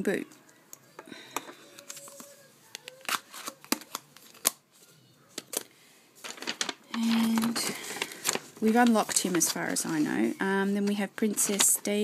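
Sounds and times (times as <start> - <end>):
rubbing and rustling: 6.2 - 12.0.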